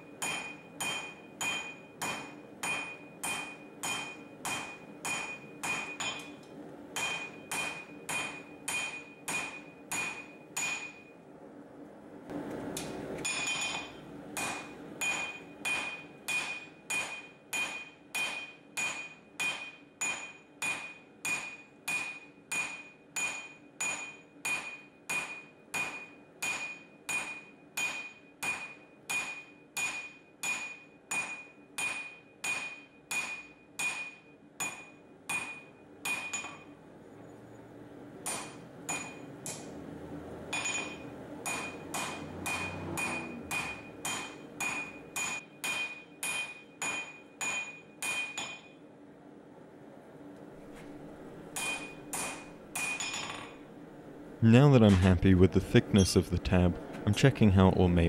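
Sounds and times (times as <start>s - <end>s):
hammer striking steel on anvil: 0.0s - 11.2s, 13.2s - 36.8s, 38.2s - 39.7s, 40.5s - 48.9s, 51.5s - 53.6s.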